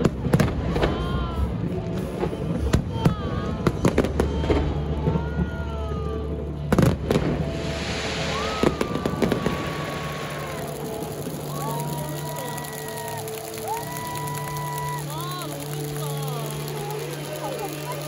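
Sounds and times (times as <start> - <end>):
fireworks crackling: 0.0 - 18.0
fireworks bangs: 6.7 - 18.0.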